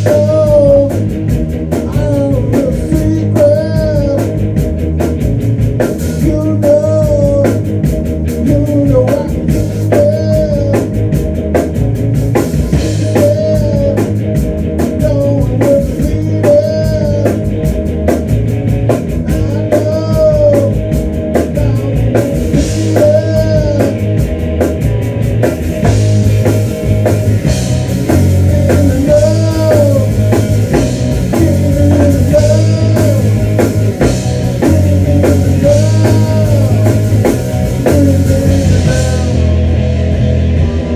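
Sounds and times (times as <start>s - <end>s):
drum kit beat: 0.0s - 40.9s
rock band playing live: 0.0s - 40.9s.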